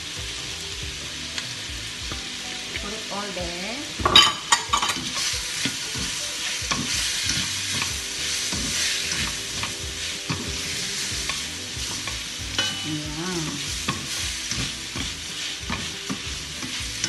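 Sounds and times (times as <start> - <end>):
food sizzling in a wok: 0.0 - 17.0
spatula scraping a wok: 4.1 - 17.0.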